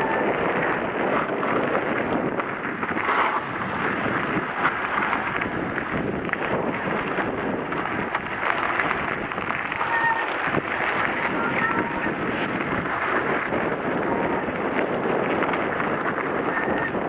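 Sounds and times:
bike clicks and rattles: 0.0 - 17.0
tyre noise on gravel: 0.0 - 17.0
wind noise: 0.0 - 17.0
short squeak: 9.8 - 10.3.

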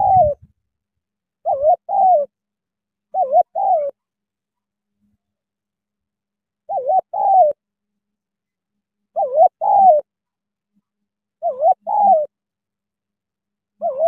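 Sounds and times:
dove cooing: 0.0 - 0.5, 1.4 - 2.4, 3.1 - 4.0, 6.7 - 7.6, 9.1 - 10.1, 11.4 - 12.4, 13.8 - 14.0.

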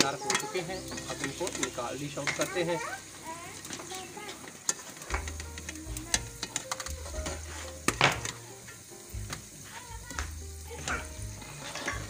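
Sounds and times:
metal skimmer clinking against pot: 0.0 - 2.8, 10.8 - 12.0
food sizzling in hot oil: 0.0 - 12.0.

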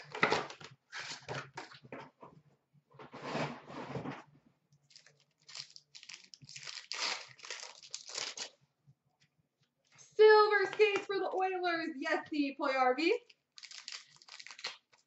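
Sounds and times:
card pack being torn open: 4.9 - 8.5, 13.6 - 15.0
plastic wrappers crinkling: 4.9 - 8.6, 13.5 - 15.0.

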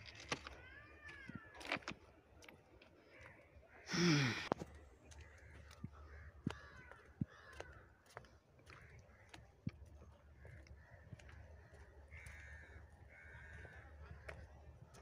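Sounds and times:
faint bird calls: 3.0 - 15.0
crow cawing: 5.4 - 7.9, 10.4 - 14.4.

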